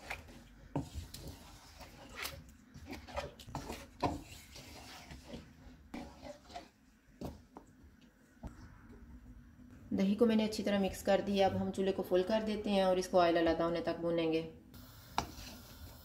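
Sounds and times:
wooden spatula scraping a pan: 0:00.0 - 0:07.4.

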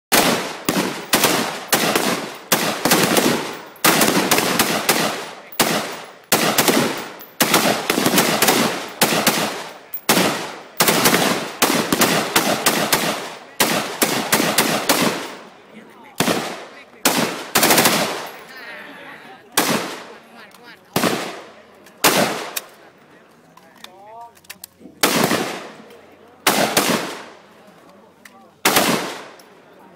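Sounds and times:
gunshot echo: 0:00.1 - 0:15.4
rifle gunfire: 0:00.1 - 0:15.4, 0:16.2 - 0:18.4, 0:19.6 - 0:20.1, 0:21.0 - 0:22.7, 0:25.0 - 0:25.8, 0:26.4 - 0:27.3, 0:28.6 - 0:29.4.

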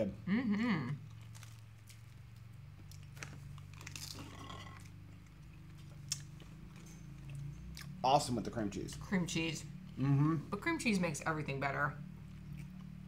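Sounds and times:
steady low hum: 0:00.0 - 0:13.0
chewing crunchy bagel: 0:00.9 - 0:08.0, 0:12.0 - 0:13.0.

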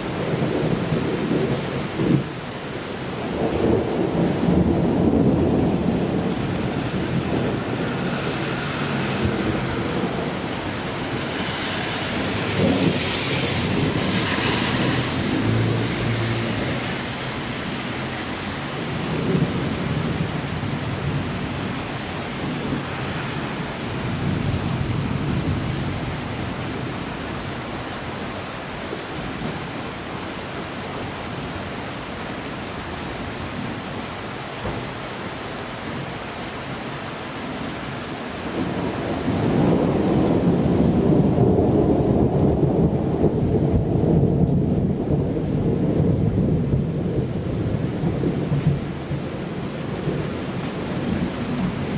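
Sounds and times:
steady rain: 0:00.0 - 0:51.9
thunder rumbling: 0:03.2 - 0:27.6, 0:38.5 - 0:51.9.

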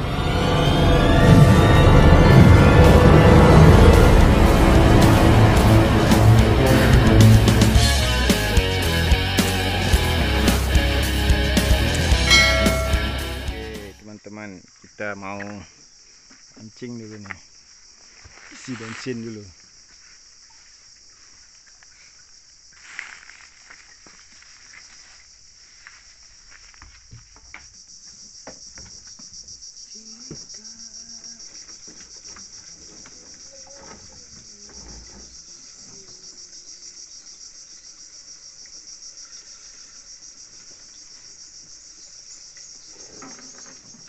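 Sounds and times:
insect chorus trilling: 0:14.0 - 0:44.0.

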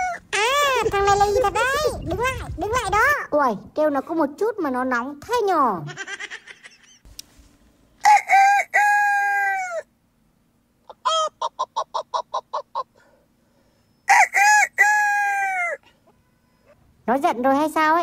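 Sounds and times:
rooster crowing: 0:08.0 - 0:09.9, 0:14.1 - 0:15.8.

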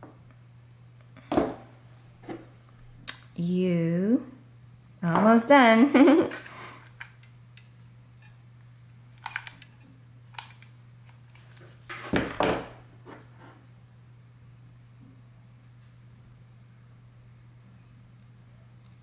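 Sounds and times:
faint low hum: 0:12.6 - 0:19.0.

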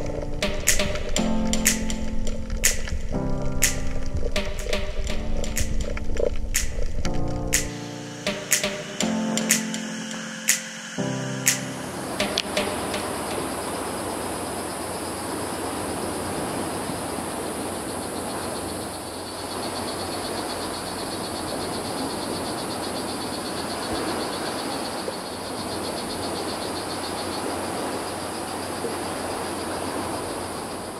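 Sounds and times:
high insect hiss: 0:09.1 - 0:30.9.

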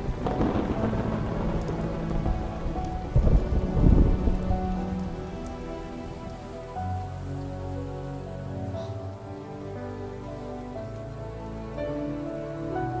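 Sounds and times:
thunder rumbling: 0:00.0 - 0:07.3
steady rain: 0:00.0 - 0:13.0.

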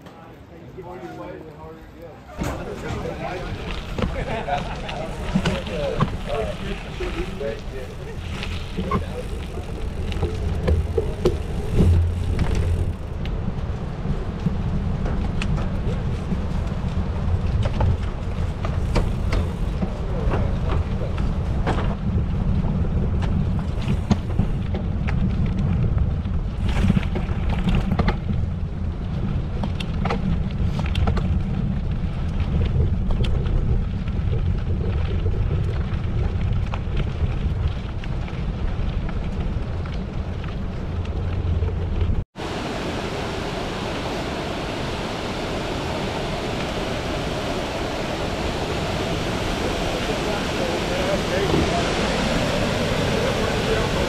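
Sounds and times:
bike clicks and rattles: 0:02.3 - 0:42.2
bike tyres crunching on gravel: 0:02.4 - 0:42.2
wind buffeting microphone: 0:02.4 - 0:54.0.

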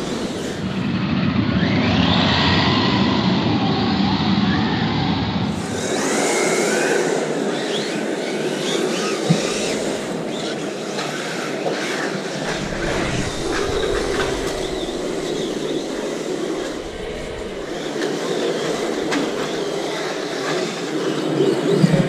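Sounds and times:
rc cars driving on wooden floor: 0:00.0 - 0:00.6, 0:05.6 - 0:22.0.

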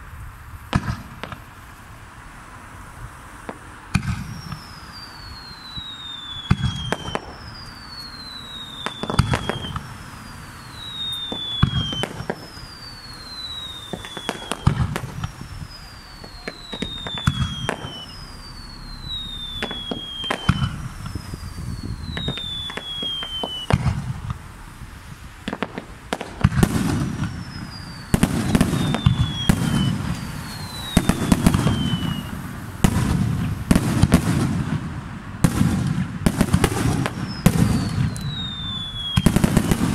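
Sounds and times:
firework crackling: 0:00.0 - 0:39.9
firework shells bursting: 0:00.6 - 0:01.8, 0:03.4 - 0:24.8, 0:25.4 - 0:39.9
firework falling whistle: 0:03.4 - 0:24.8, 0:25.4 - 0:39.9
low booms: 0:13.9 - 0:38.4.

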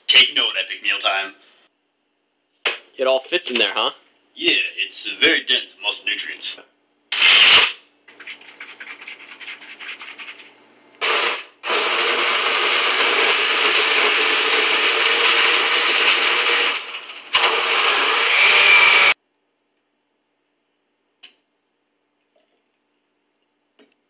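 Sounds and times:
blender motor chopping food: 0:11.0 - 0:19.2.

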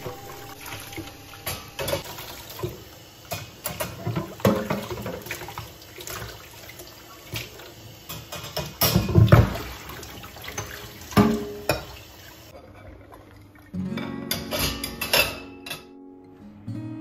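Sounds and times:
water splashing and running: 0:00.0 - 0:13.6
dishes clinking and knocking: 0:01.4 - 0:05.4, 0:08.1 - 0:09.7, 0:10.4 - 0:12.0, 0:14.0 - 0:15.9.

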